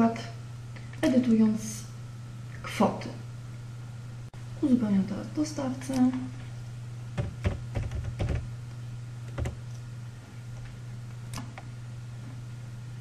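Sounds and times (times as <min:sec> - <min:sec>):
low electrical hum: 0:00.0 - 0:13.0
keyboard keystrokes: 0:07.2 - 0:08.5, 0:09.3 - 0:09.8.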